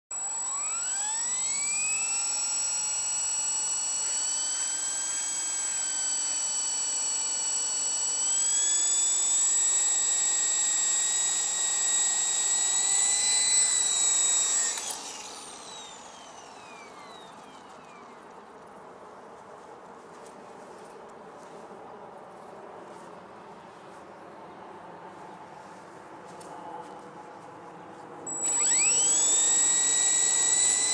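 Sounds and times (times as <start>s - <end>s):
helicopter motor and rotor whine: 0.1s - 18.3s, 28.3s - 30.9s
motor click: 0.2s - 18.4s, 28.3s - 30.9s.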